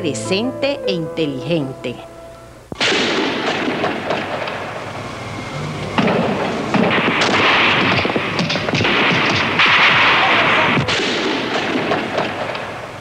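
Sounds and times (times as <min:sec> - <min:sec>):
dense gunfire: 0:02.8 - 0:05.0, 0:05.9 - 0:13.0
explosions: 0:02.8 - 0:12.9.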